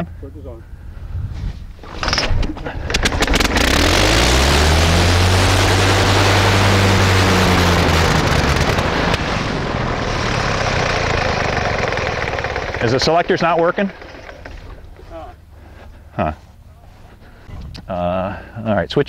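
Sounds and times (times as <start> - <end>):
engine firing pops: 1.8 - 3.8
aero engine running: 2.1 - 17.5.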